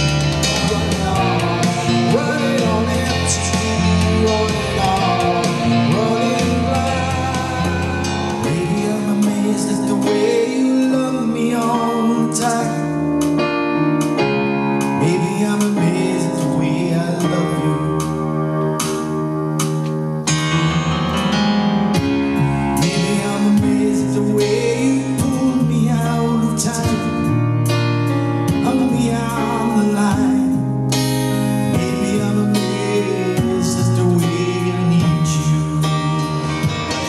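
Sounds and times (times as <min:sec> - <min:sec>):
man singing: 0:00.0 - 0:13.5, 0:14.8 - 0:19.1, 0:20.3 - 0:21.4, 0:22.6 - 0:27.8, 0:28.4 - 0:37.0
backing music accompaniment: 0:00.0 - 0:37.0
keyboard playing: 0:00.0 - 0:37.0.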